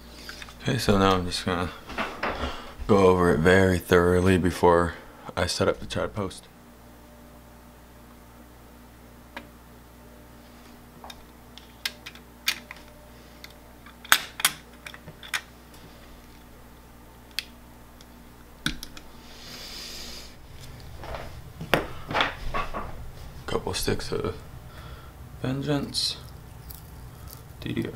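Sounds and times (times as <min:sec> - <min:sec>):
handling noise: 0:20.4 - 0:24.0.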